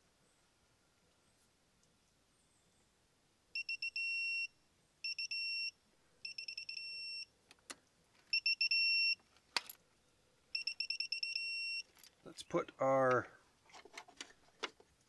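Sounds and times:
quick two-pitch beeps: 0:08.4 - 0:09.2.

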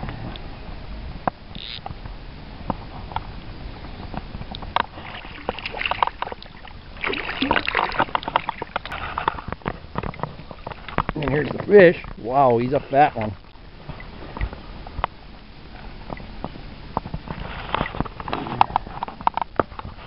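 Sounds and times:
fish splashing at water surface: 0:04.8 - 0:11.1.

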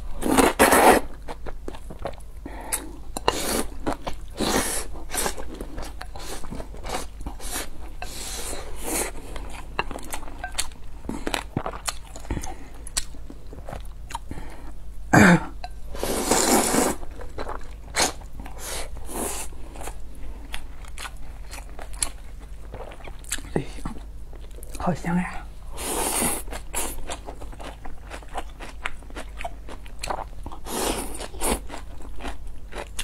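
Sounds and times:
person slurping noodles: 0:00.2 - 0:01.1, 0:16.0 - 0:17.0.

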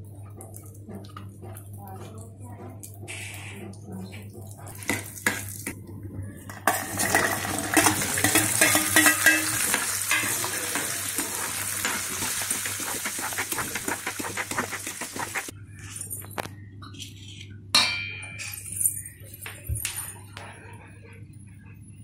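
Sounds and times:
garlic sizzling in hot oil: 0:06.7 - 0:15.5
metal spoon scraping pan: 0:06.7 - 0:15.5.

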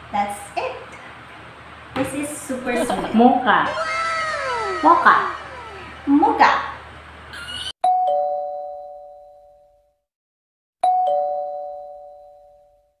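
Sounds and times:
two-note doorbell chime: 0:07.8 - 0:09.7, 0:10.8 - 0:12.8.

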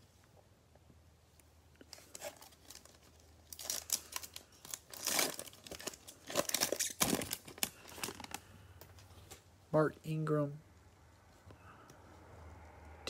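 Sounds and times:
cellophane wrapper crinkling and tearing: 0:01.8 - 0:09.3.

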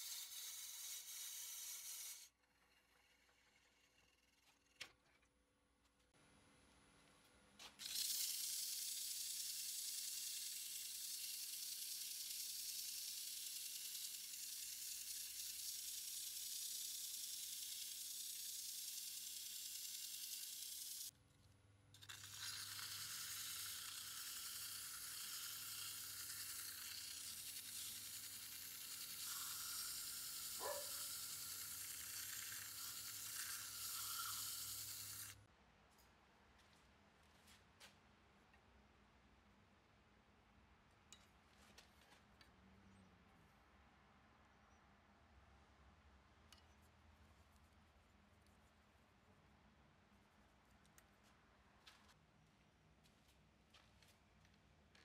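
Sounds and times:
wood lathe hissing: 0:07.8 - 0:21.1, 0:22.2 - 0:35.4.

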